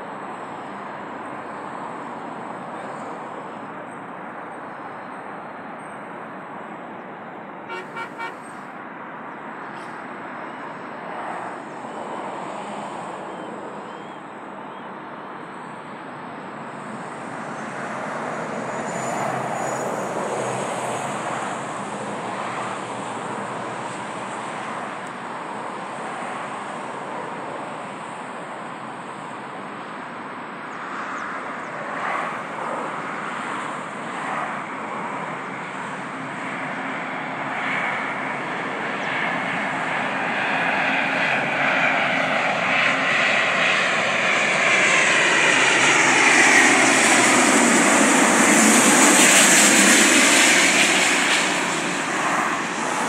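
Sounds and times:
short horn toots: 7.7s - 8.6s.

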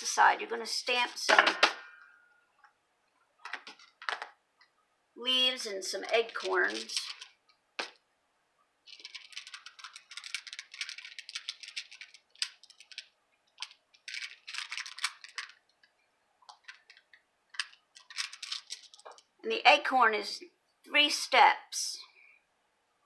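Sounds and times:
rustling: 8.8s - 15.9s, 16.5s - 19.3s
crisp plastic clicking: 8.9s - 19.3s.

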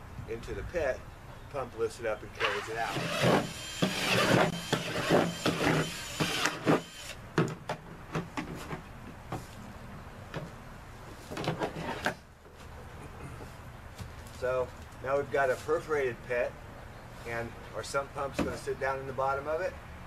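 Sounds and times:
power drill boring plastic: 2.4s - 7.2s.

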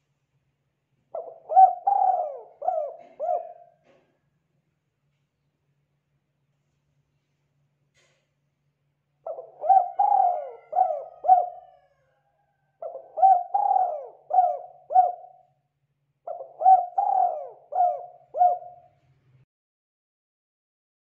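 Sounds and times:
dove cooing: 1.2s - 4.1s, 9.2s - 12.0s, 12.8s - 15.5s, 16.3s - 19.0s.

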